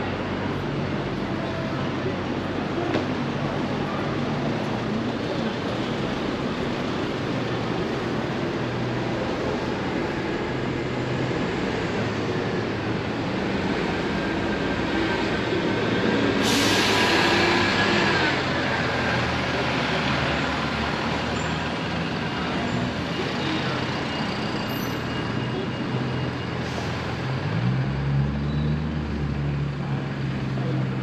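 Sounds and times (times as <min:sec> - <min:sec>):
street traffic: 0:00.0 - 0:31.0
high brake squeal: 0:16.2 - 0:17.7, 0:21.1 - 0:27.5, 0:28.4 - 0:29.0
air brake hiss: 0:16.4 - 0:17.3, 0:26.6 - 0:27.1.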